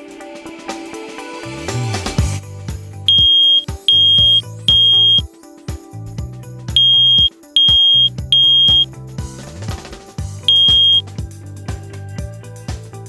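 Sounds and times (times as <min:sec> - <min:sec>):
smoke alarm beeping: 0:03.1 - 0:05.2, 0:06.8 - 0:08.8, 0:10.5 - 0:11.0.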